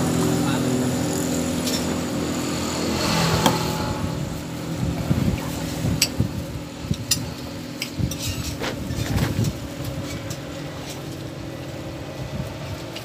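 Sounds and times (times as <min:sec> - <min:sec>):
wind buffeting microphone: 0:00.0 - 0:10.5, 0:11.5 - 0:13.0
vehicle engine running: 0:00.0 - 0:13.0.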